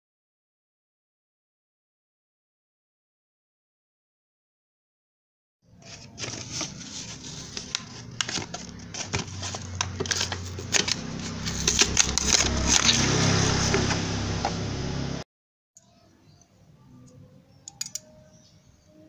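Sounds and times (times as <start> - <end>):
packaging crinkling: 5.8 - 14.0
low steady hum: 5.8 - 15.2
sharp clicks: 17.6 - 18.2.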